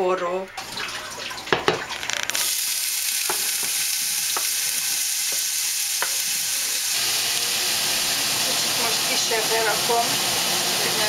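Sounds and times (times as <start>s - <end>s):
onions sizzling in hot oil: 2.3s - 11.0s
wooden spoon knocking on board: 3.3s - 4.5s.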